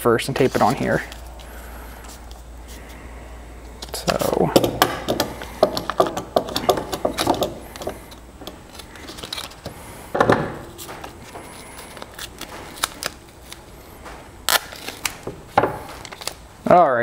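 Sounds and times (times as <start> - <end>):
tape being pulled: 3.8 - 9.8, 10.6 - 16.4
sheet crinkling: 10.7 - 15.2.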